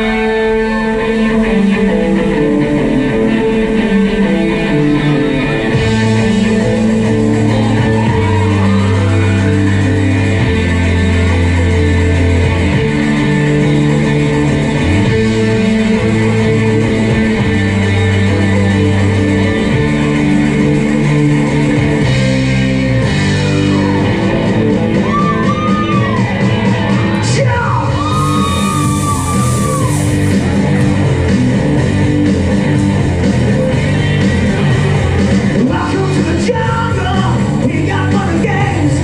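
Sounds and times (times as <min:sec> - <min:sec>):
loud rock music with guitar: 0:00.0 - 0:39.0
gas jets hissing: 0:28.0 - 0:30.9
person singing into a microphone: 0:35.6 - 0:39.0.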